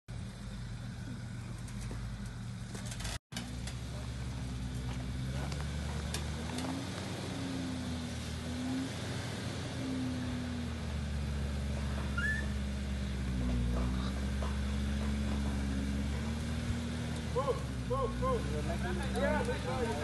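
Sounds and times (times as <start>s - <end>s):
car engine running at low revs: 0.1s - 20.0s.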